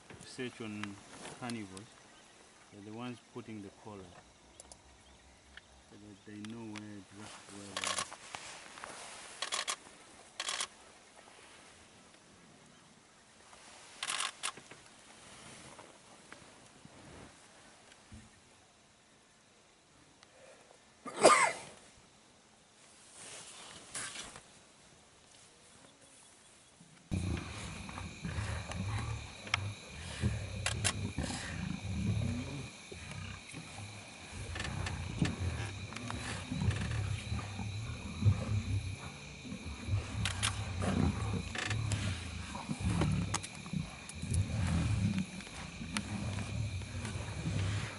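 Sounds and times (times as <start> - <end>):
faint steady hiss: 0.0 - 47.9
sharp clicks: 7.8 - 8.1, 28.6 - 31.4, 40.2 - 40.6
lions growling: 27.1 - 47.9.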